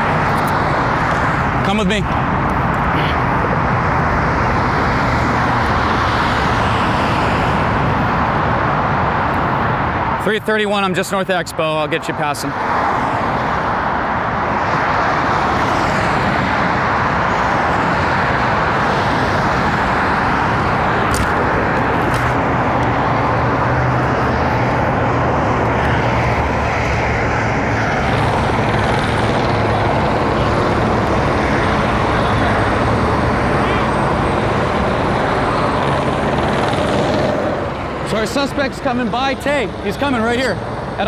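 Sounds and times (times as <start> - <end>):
heavy freeway traffic roar: 0.0 - 41.0.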